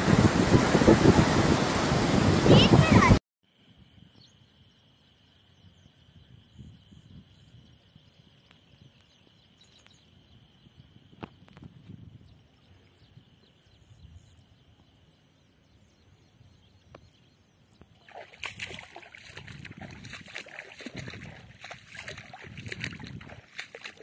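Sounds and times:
feet splashing through water: 17.9s - 24.0s.

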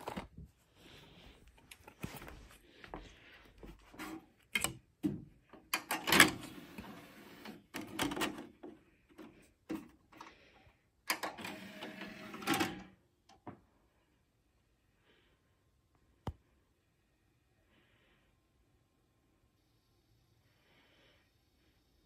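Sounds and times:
disc player mechanism clicking and whirring: 5.7s - 8.6s, 11.1s - 12.9s.

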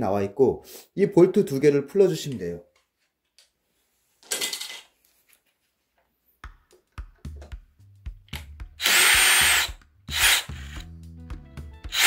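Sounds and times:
drill bit knocks and clicks: 8.3s - 10.9s
drill whining: 8.8s - 10.9s.

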